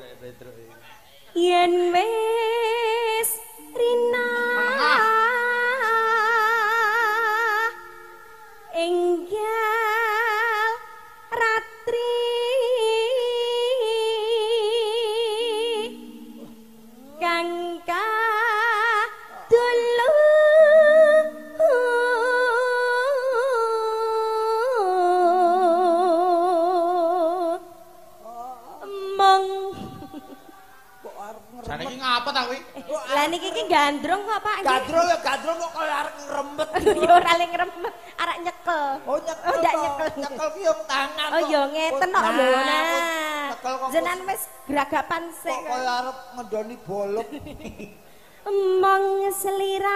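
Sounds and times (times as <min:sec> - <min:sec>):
woman singing with vibrato: 0:01.3 - 0:28.2, 0:28.8 - 0:31.0, 0:32.9 - 0:35.4, 0:36.0 - 0:46.0, 0:48.4 - 0:49.9
low steady instrument notes: 0:12.0 - 0:19.0, 0:19.7 - 0:27.0.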